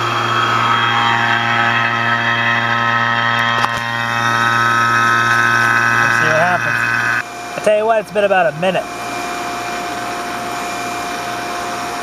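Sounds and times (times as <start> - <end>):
vacuum pump humming: 0.0 - 12.0.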